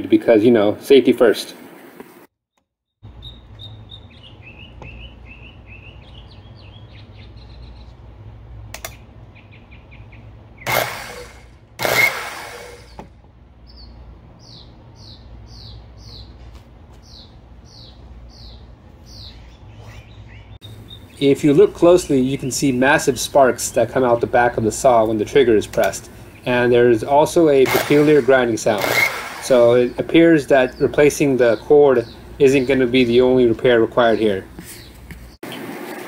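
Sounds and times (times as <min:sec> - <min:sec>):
birds chirping: 0:02.5 - 0:12.0, 0:12.8 - 0:35.7
circular saw motor grinding: 0:10.6 - 0:13.0, 0:27.2 - 0:30.3.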